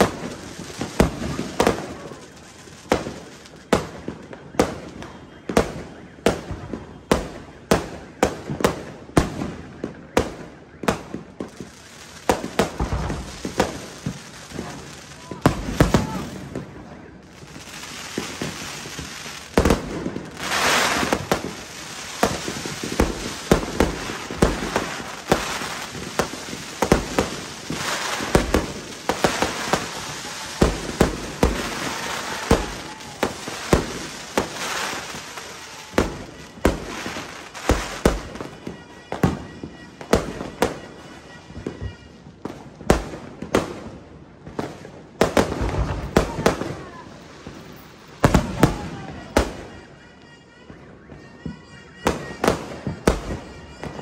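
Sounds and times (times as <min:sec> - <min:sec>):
fireworks bangs: 0:00.0 - 0:54.0
fireworks crackling: 0:00.0 - 0:54.0.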